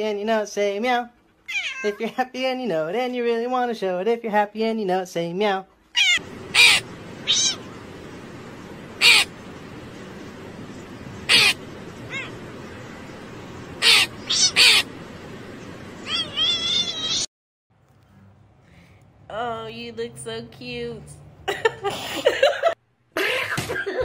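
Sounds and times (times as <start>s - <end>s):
cat meowing: 1.5s - 2.0s, 5.9s - 7.8s, 11.3s - 12.5s, 13.8s - 14.9s, 16.0s - 17.3s
background hiss: 6.2s - 17.3s.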